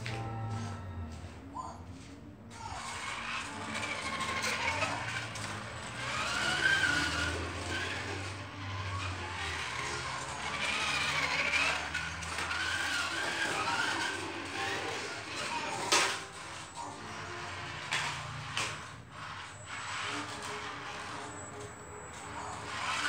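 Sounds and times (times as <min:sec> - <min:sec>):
toy race car motor whine: 0:02.5 - 0:23.0.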